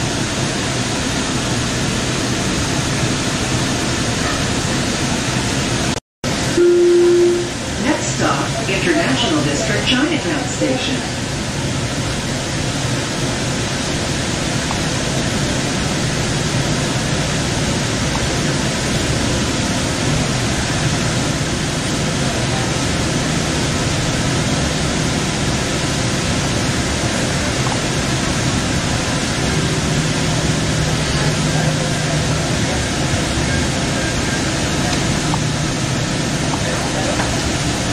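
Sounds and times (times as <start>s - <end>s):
train rumble and hiss: 0.0s - 37.9s
low steady hum: 6.5s - 11.1s.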